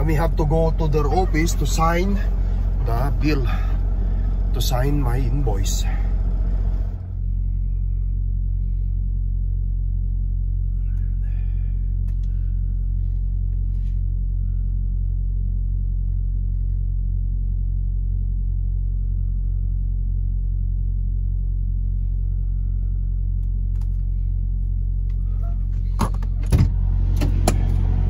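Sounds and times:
diesel engine idling: 0.0 - 8.9, 21.9 - 28.0.

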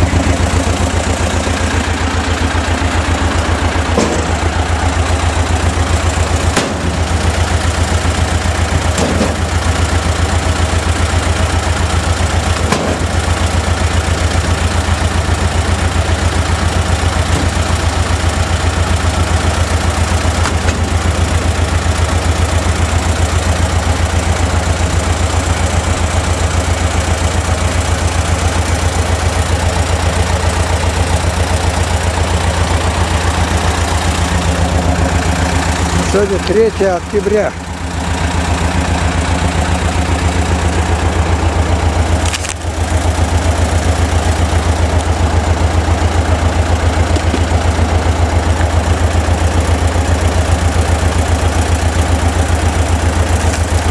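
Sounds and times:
tractor diesel engine running: 0.0 - 53.9
logs being split: 3.9 - 4.8, 6.4 - 7.3, 12.5 - 13.4, 20.2 - 21.3, 42.1 - 43.2, 47.1 - 47.9, 53.0 - 53.9.

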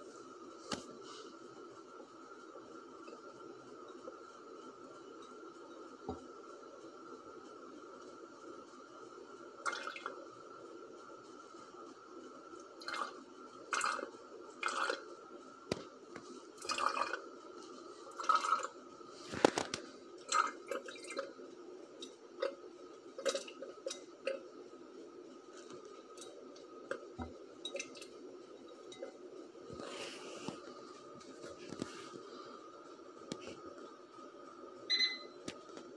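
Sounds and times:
water dripping into glass beaker: 26.2 - 28.2.

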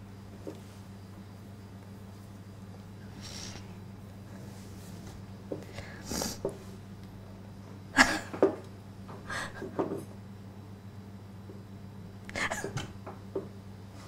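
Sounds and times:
low steady hum: 0.0 - 14.0
sniffing: 3.1 - 3.8, 5.7 - 6.5.

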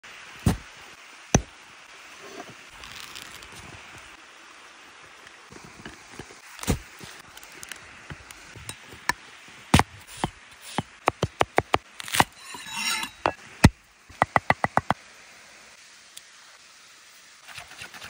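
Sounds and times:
knife scraping board: 12.1 - 13.4.

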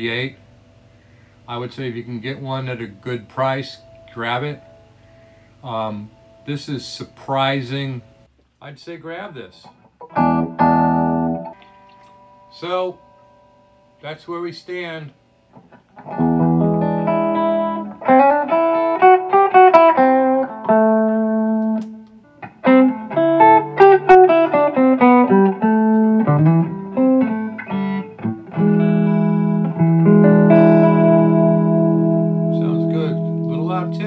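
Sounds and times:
electric guitar playing: 2.2 - 8.2, 10.0 - 14.0, 15.5 - 34.0.

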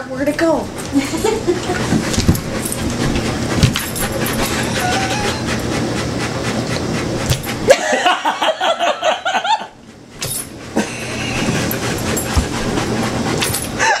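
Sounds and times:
dogs panting heavily: 0.6 - 14.0.

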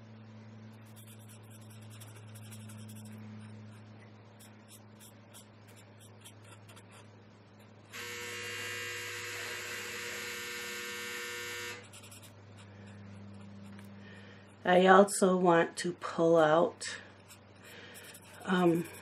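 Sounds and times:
steady electric buzz: 0.0 - 14.7
marker strokes on paper: 0.8 - 7.1, 17.2 - 19.0.

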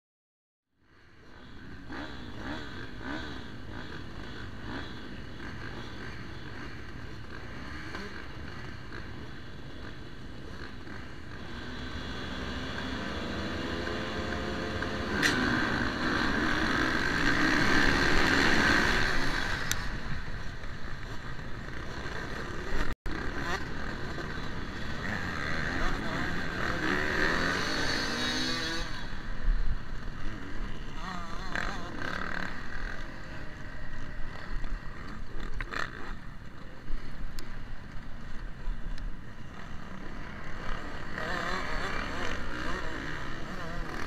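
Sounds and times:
motocross bikes revving: 0.9 - 44.0
sharp clack: 15.2 - 15.5.

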